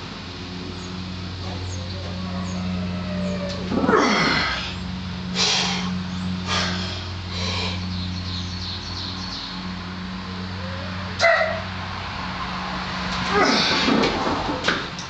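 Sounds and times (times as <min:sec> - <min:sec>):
steady low hum: 0:00.0 - 0:13.9
heavy breathing: 0:04.0 - 0:07.9.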